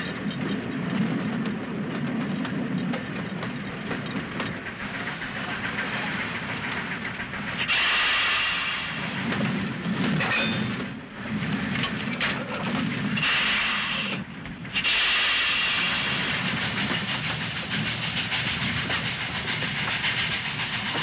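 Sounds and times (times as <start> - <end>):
steam locomotive rumbling on rails: 0.0 - 21.0
loud hiss of steam: 4.9 - 9.3, 13.2 - 14.2, 14.8 - 21.0.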